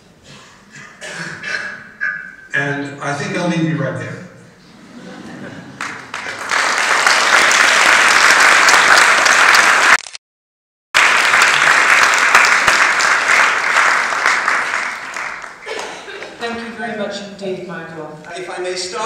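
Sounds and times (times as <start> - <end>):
audience applauding: 5.6 - 10.2, 11.0 - 16.4.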